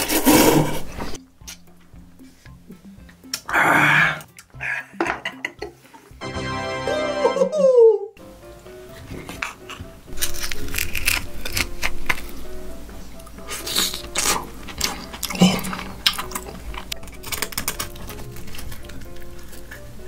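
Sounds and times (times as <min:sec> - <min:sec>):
background music: 0:00.0 - 0:20.0
person eating: 0:02.2 - 0:05.0, 0:09.2 - 0:20.0
spoon and chopsticks scraping bones: 0:09.3 - 0:12.4, 0:13.4 - 0:19.8.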